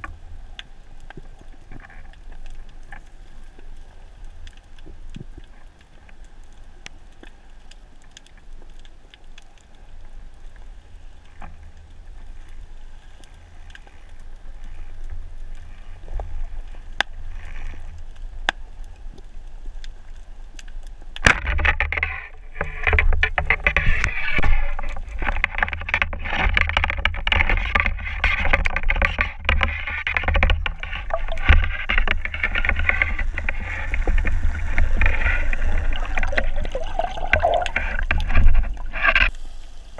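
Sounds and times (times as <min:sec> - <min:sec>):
water rushing and bubbling: 0:22.5 - 0:39.9
faint underwater hiss: 0:31.0 - 0:39.9.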